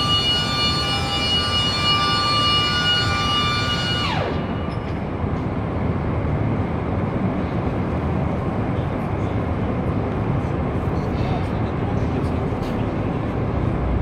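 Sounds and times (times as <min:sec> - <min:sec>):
hangar background noise: 0:00.0 - 0:14.0
faint voices: 0:08.3 - 0:13.5.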